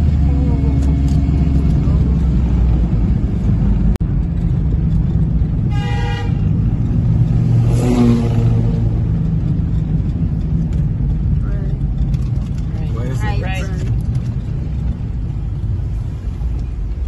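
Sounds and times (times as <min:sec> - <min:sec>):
car engine and road noise: 0:00.0 - 0:17.0
car horn toot: 0:05.6 - 0:06.6.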